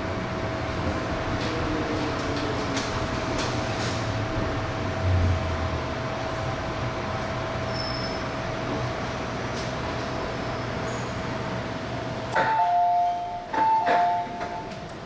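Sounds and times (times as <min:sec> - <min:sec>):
train equipment hum: 0:00.0 - 0:15.0
two-tone door chime: 0:12.4 - 0:14.8.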